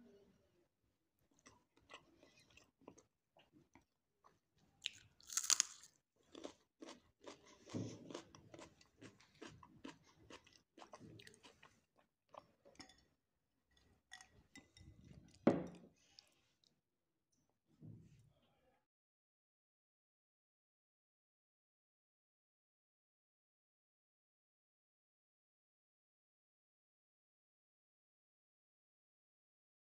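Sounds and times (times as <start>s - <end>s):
crunchy bite into pepper: 4.8s - 5.9s
crunchy chewing: 4.8s - 12.4s.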